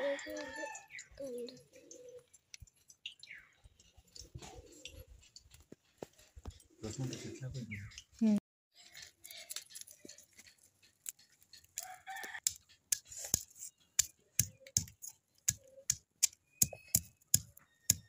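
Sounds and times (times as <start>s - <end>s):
stone pestle pounding on stone: 12.5s - 18.0s.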